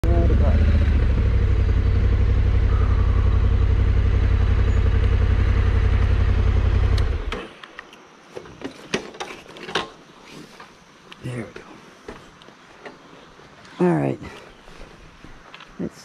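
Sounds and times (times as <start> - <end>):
motorcycle engine running: 0.0 - 7.4.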